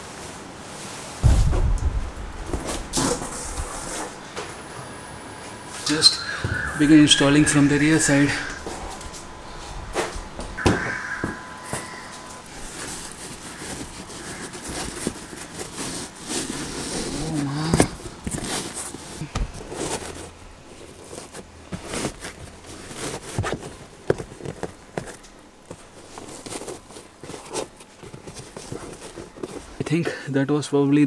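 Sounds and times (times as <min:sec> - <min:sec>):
floor mat scraping and rustling: 0:02.4 - 0:04.6.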